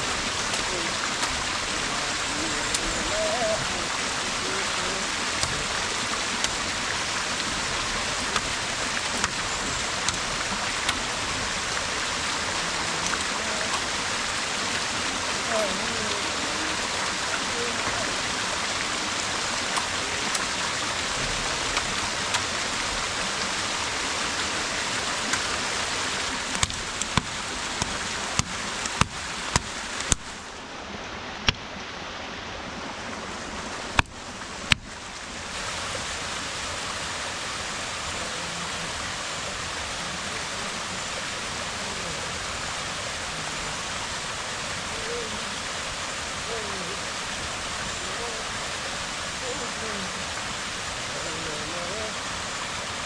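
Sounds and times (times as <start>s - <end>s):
running water rushing: 0.0s - 53.0s
sharp knocks: 26.6s - 30.3s.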